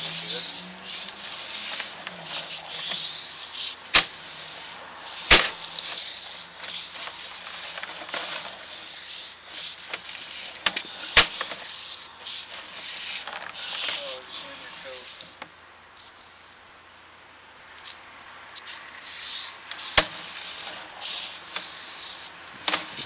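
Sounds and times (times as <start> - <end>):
cable rubbing hiss: 0.0 - 15.4, 18.6 - 23.0.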